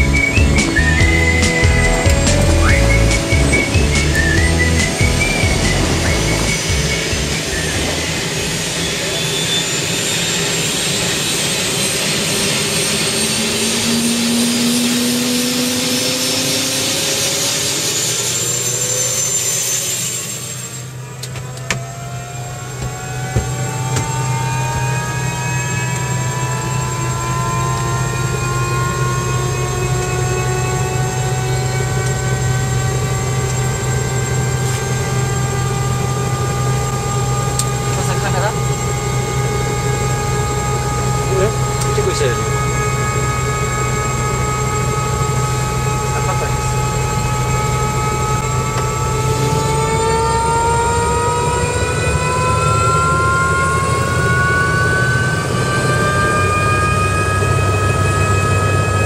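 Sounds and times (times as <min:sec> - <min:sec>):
loud rushing noise rising tone: 0:00.0 - 0:20.7
helicopter turbine spooling up: 0:00.0 - 0:59.0.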